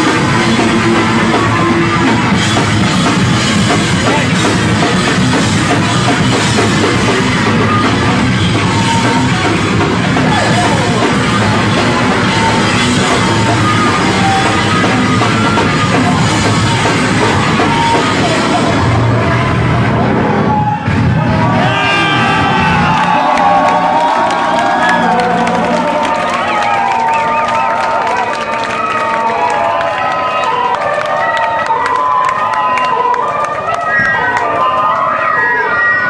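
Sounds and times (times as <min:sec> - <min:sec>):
distorted bass guitar: 0:00.0 - 0:26.5
drum kit playing: 0:00.0 - 0:27.8.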